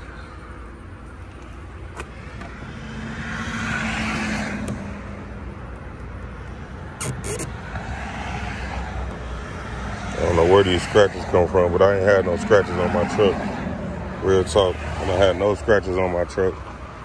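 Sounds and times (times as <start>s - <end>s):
road traffic rumble: 0.0s - 17.0s
vehicle passing by: 2.2s - 5.4s
sharp clicks: 7.0s - 7.6s.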